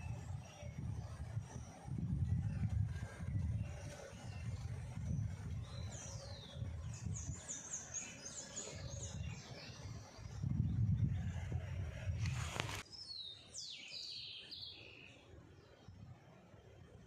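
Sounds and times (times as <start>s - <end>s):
bird whistling and chirping: 12.9s - 15.1s.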